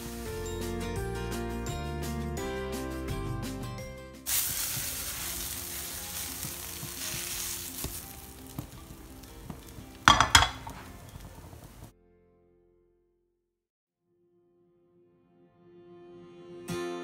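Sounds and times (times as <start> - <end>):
frying pan clattering: 4.3 - 11.9
vegetables sizzling in a frying pan: 4.3 - 11.9.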